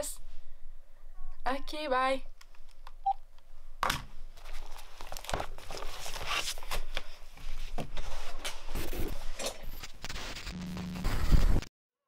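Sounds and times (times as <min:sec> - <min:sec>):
crinkling and crackling rustle: 0:04.3 - 0:11.6.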